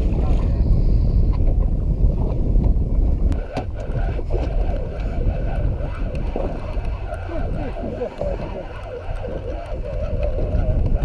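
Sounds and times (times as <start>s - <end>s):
wind buffeting microphone: 0.0s - 11.0s
fishing reel whirring: 3.6s - 11.0s.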